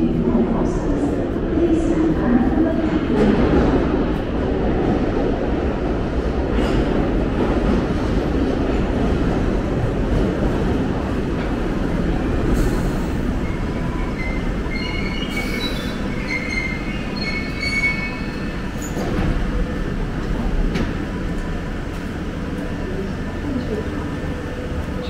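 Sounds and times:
train rumbling: 0:00.0 - 0:25.0
train doors opening: 0:10.2 - 0:22.7
train brakes squealing: 0:13.6 - 0:19.1.

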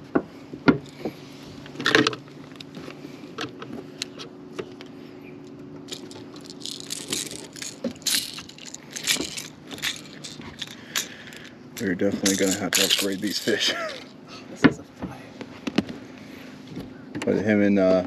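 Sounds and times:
steady low hum: 0:00.0 - 0:18.0
pliers and hooks clicking: 0:05.9 - 0:14.1.

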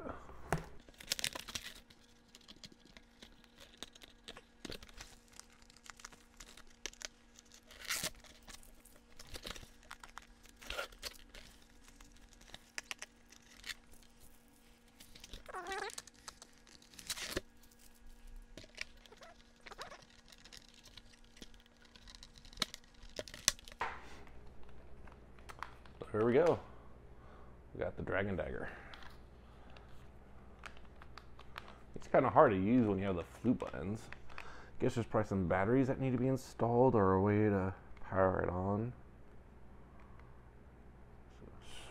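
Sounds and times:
packaging crinkling and rustling: 0:00.8 - 0:24.0.

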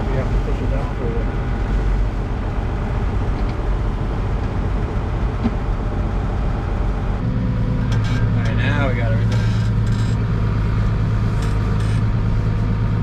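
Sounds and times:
tractor engine rumbling: 0:00.0 - 0:13.0.

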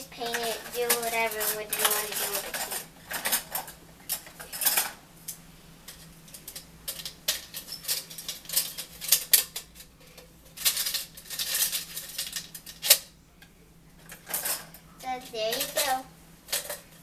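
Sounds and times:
plastic spoons rattling in can: 0:00.2 - 0:04.9, 0:06.3 - 0:13.0, 0:15.4 - 0:17.0.

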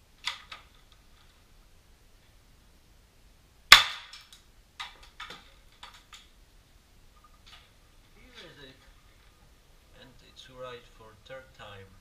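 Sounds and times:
airsoft gun shot crack: 0:03.7 - 0:04.2.

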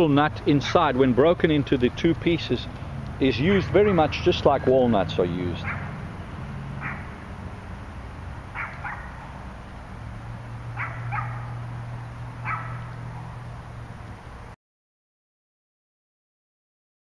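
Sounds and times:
steady low hum: 0:00.0 - 0:14.6
dog barking: 0:05.6 - 0:06.0, 0:06.8 - 0:07.1, 0:08.5 - 0:09.2, 0:10.8 - 0:11.6, 0:12.4 - 0:13.0.

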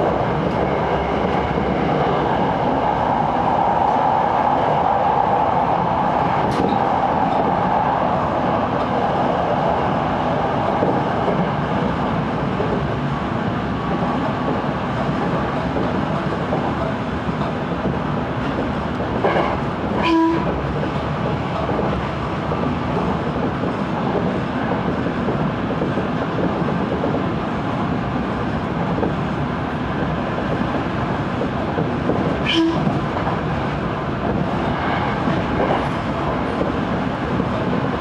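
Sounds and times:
rail joints clacking: 0:04.7 - 0:38.0
train horn toots: 0:20.0 - 0:20.5, 0:32.4 - 0:33.0.

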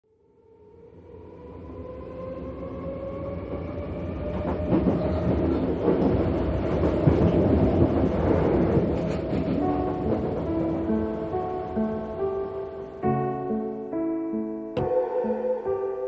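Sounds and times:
train wheels rumbling: 0:02.8 - 0:11.8
faint rising tone: 0:14.8 - 0:16.0.

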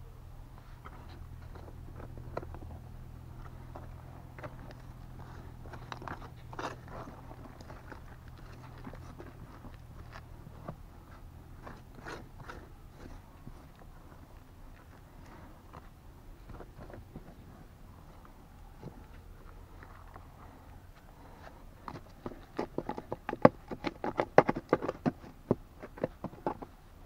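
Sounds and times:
low steady hum: 0:00.0 - 0:27.0
gravel clicks: 0:00.6 - 0:27.0
tool scraping through dry soil: 0:11.0 - 0:13.8.

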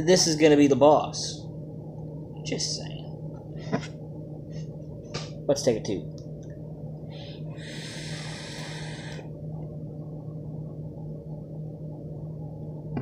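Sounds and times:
steady low hum: 0:00.0 - 0:13.0
e-cigarette puff and hiss: 0:07.6 - 0:09.2.

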